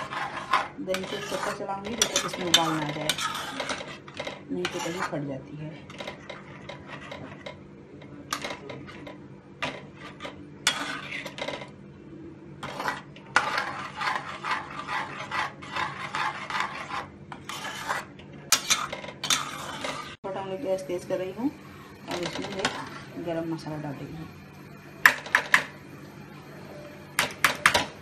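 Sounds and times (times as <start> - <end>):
metal spatula scraping a metal pot: 0.0 - 7.6, 8.2 - 11.8, 12.6 - 20.2, 22.1 - 23.4
steady low hum: 0.0 - 28.0.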